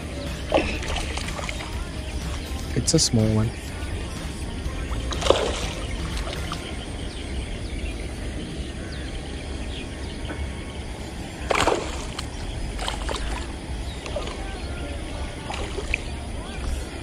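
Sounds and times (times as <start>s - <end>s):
outdoor background noise: 0.0s - 17.0s
fish splashing at water surface: 0.3s - 2.5s, 4.9s - 6.7s, 11.4s - 16.6s.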